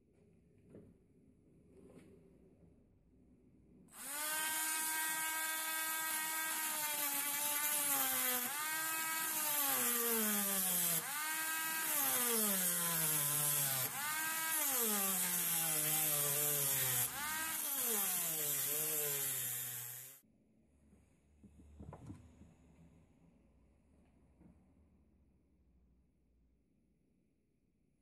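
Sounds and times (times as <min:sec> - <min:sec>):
rotary tool grinding steel: 0:04.0 - 0:20.2.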